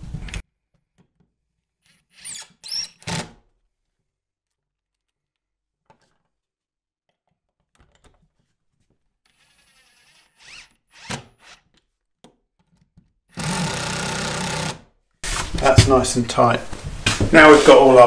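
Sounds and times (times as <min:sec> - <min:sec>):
cordless drill driving screw: 0:09.3 - 0:11.7, 0:13.3 - 0:14.8.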